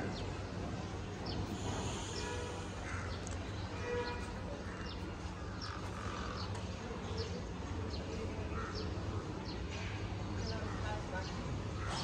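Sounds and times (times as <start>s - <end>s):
birds chirping: 1.1s - 6.6s.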